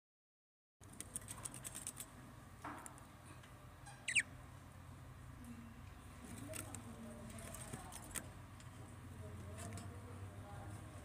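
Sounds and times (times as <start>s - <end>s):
budgerigar chirp: 3.9s - 4.3s.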